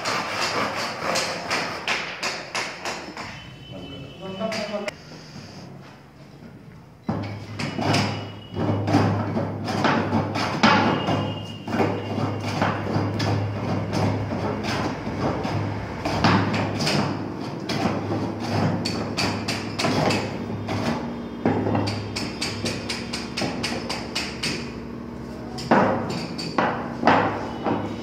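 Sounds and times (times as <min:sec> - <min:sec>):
hand tools tapping on wood: 0:00.0 - 0:03.4, 0:08.9 - 0:20.9, 0:21.5 - 0:24.7.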